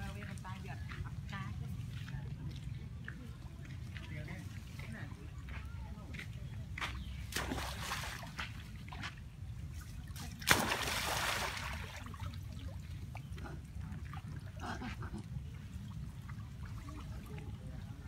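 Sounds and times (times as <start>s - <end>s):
monkey splashing into water: 7.2s - 8.4s, 10.1s - 12.8s.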